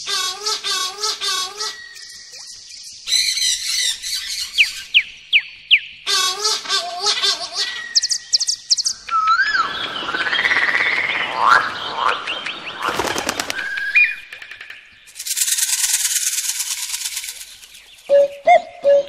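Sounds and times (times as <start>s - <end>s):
bird chirps and whistles: 0.3s - 5.9s, 7.6s - 11.1s
rapid high buzzing trill: 15.2s - 17.9s.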